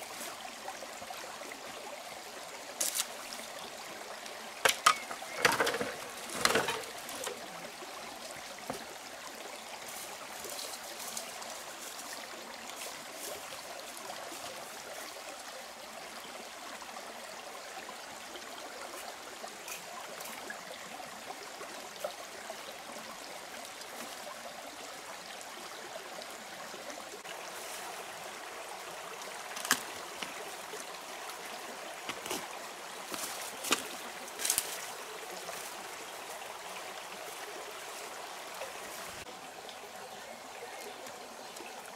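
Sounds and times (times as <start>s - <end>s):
stream running: 0.0s - 41.9s
bamboo poles knocking: 4.6s - 7.4s.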